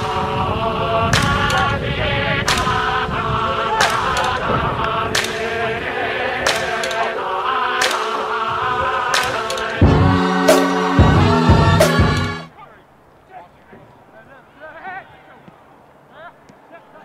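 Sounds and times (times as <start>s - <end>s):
song with chanted vocal: 0.0s - 12.5s
heavy drum hits: 9.8s - 12.5s.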